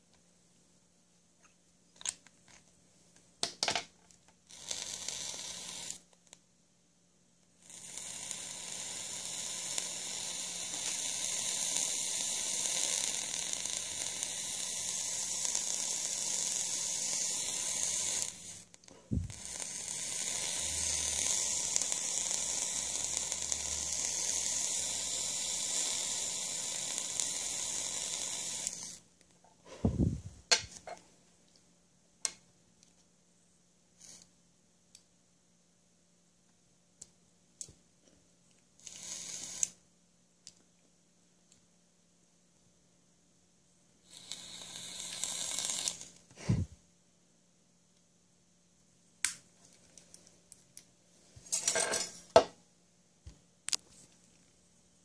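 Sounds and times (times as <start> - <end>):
vape coil sizzling: 4.4 - 6.4, 7.5 - 29.1, 29.7 - 30.8, 34.0 - 34.3, 38.8 - 39.8, 44.0 - 46.8.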